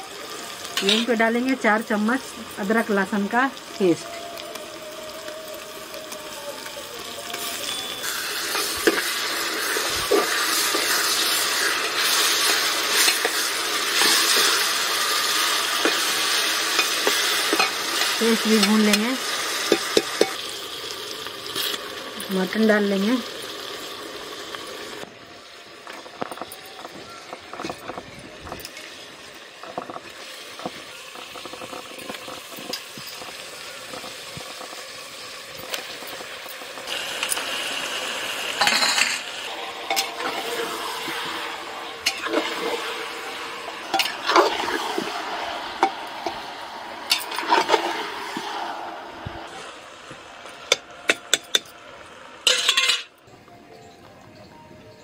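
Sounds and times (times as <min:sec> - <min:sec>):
meat sizzling in hot oil: 0:00.0 - 0:53.2
metal spatula scraping pot: 0:07.4 - 0:19.0, 0:38.6 - 0:48.6, 0:52.4 - 0:53.1.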